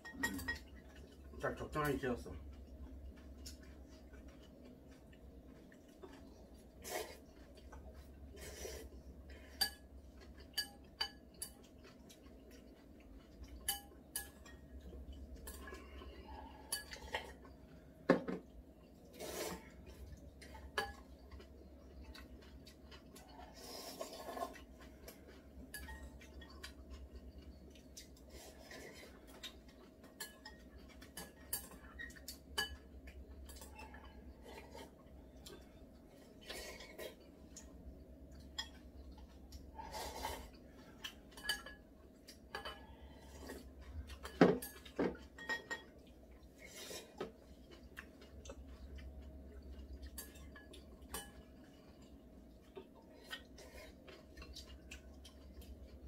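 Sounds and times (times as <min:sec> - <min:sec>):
chopsticks clinking on bowls: 0:00.0 - 0:01.1, 0:09.4 - 0:15.8, 0:25.3 - 0:28.1, 0:29.3 - 0:34.8, 0:41.0 - 0:42.9, 0:43.6 - 0:46.0, 0:49.7 - 0:52.6
faint low hum: 0:00.0 - 0:56.0.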